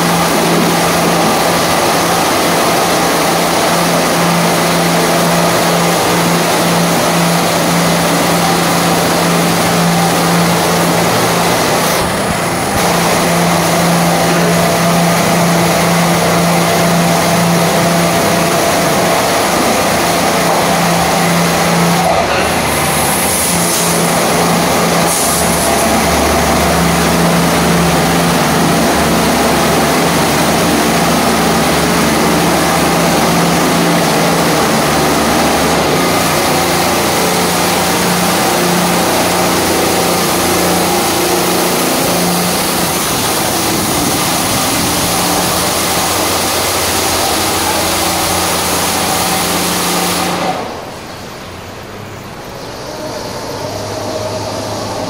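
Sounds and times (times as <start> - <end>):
water spray hissing: 0.0 - 50.8
low motor hum: 0.0 - 55.0.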